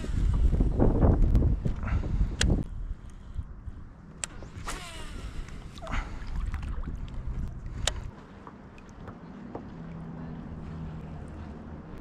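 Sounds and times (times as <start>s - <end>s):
wind and water rumble: 0.0s - 12.0s
sharp clicks: 2.4s - 2.7s.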